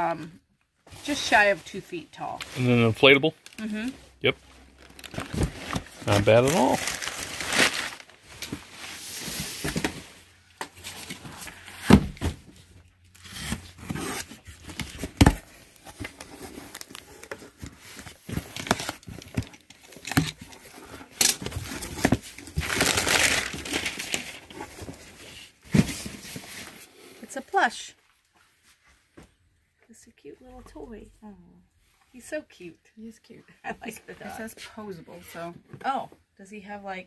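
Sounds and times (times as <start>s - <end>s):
packing paper rustling: 4.6s - 12.0s, 13.1s - 26.8s
packing tape tearing: 4.9s - 8.1s, 18.2s - 24.6s.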